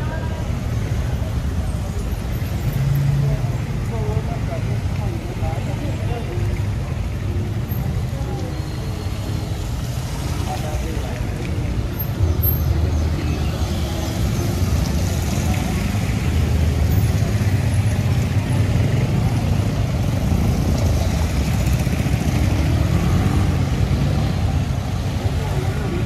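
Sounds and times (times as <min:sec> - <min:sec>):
motorcycles and cars passing: 0:00.0 - 0:26.0
tyres splashing on wet road: 0:00.3 - 0:26.0.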